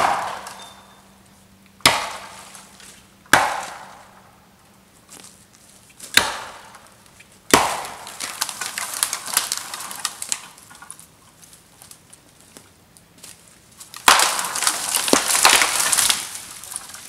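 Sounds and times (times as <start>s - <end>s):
deadwood snapping: 1.8s - 4.0s, 6.0s - 6.9s, 7.5s - 11.1s, 13.2s - 17.0s
twigs crackling and splintering: 5.1s - 17.0s.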